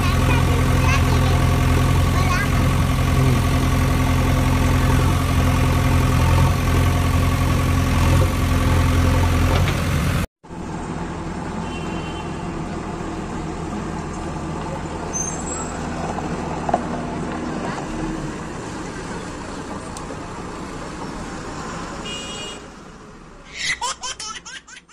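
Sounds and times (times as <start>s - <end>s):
deep engine idling: 0.0s - 10.2s
rough engine-like hum: 0.0s - 22.2s.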